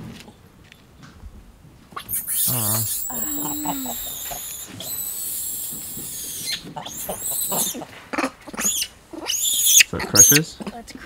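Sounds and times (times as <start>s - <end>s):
monkeys screaming: 2.0s - 10.6s.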